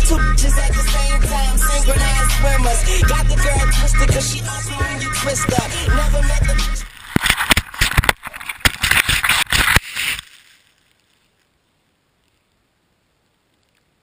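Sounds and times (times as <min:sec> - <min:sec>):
snow scraping against camera: 0:05.2 - 0:11.3.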